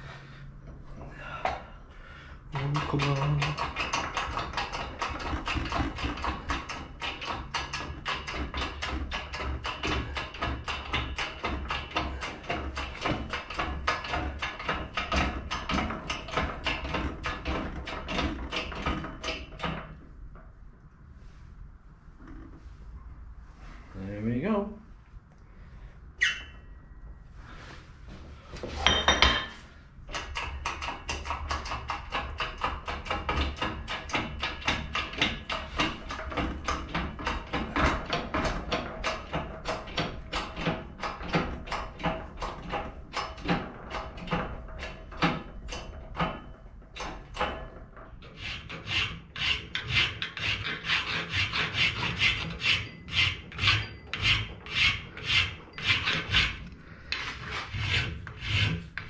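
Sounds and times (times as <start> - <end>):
file rasping on brass: 48.2 - 59.0.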